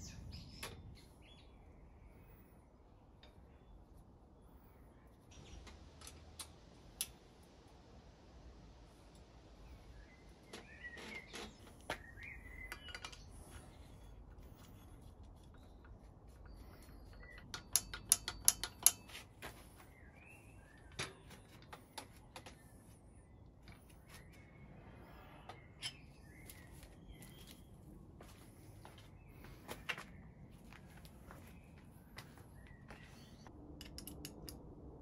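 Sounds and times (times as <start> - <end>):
small birds chirping: 0.0 - 7.2, 8.9 - 33.5
metallic clicks of bicycle parts: 11.9 - 13.8, 14.6 - 19.5, 33.8 - 34.6.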